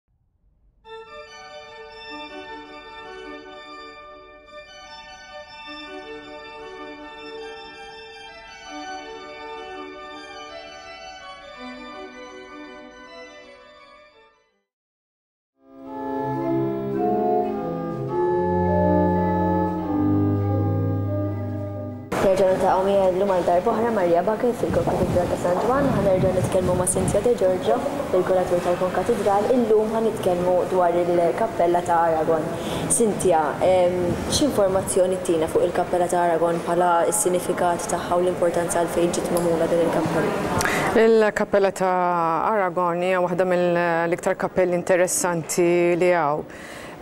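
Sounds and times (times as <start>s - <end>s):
organ chords: 0.9s - 14.2s, 15.7s - 24.3s.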